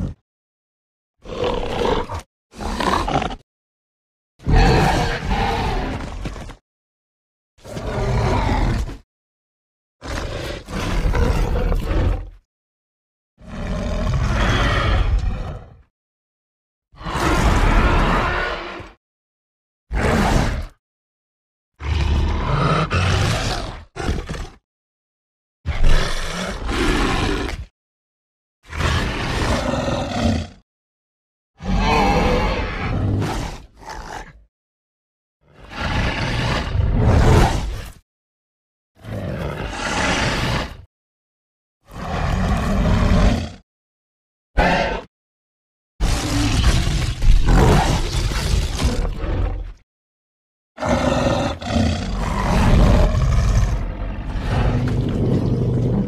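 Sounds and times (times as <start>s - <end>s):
creature roaring: 1.2s - 3.4s, 4.4s - 6.6s, 7.6s - 9.0s, 10.0s - 12.5s, 13.4s - 15.9s, 17.0s - 19.0s, 19.9s - 20.8s, 21.8s - 24.6s, 25.7s - 27.7s, 28.6s - 30.6s, 31.6s - 34.4s, 35.5s - 38.0s, 39.0s - 40.8s, 41.8s - 43.6s, 44.6s - 45.1s, 46.0s - 49.8s, 50.8s - 56.0s.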